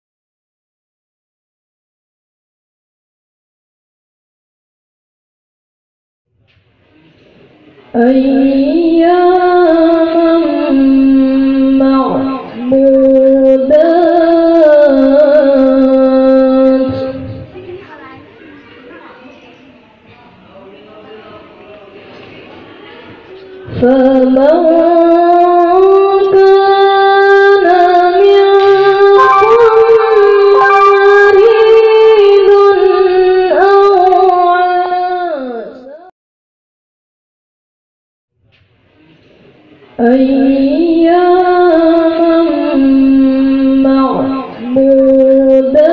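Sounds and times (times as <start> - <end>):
high voice reciting melodically: 7.9 - 19.1, 23.2 - 36.1, 40.0 - 45.9
male voice chanting melodically: 24.1 - 36.1.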